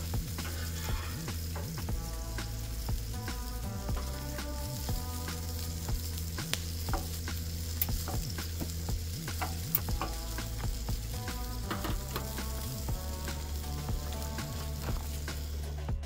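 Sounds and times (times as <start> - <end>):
meat sizzling on griddle: 0.0 - 15.9.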